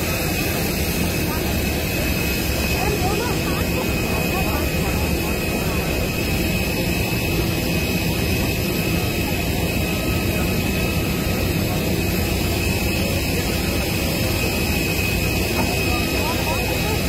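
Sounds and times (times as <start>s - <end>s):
helicopter turbine roar: 0.0s - 17.0s
high-pitched turbine whine: 0.0s - 17.0s.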